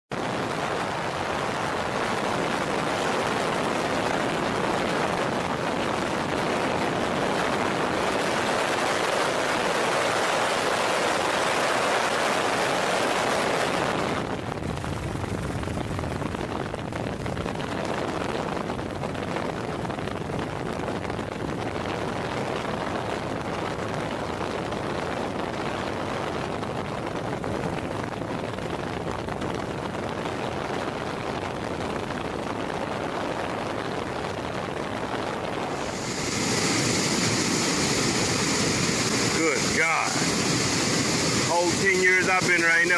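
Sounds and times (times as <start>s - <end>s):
floodwater roaring through spillway: 0.2s - 14.4s, 32.6s - 42.9s.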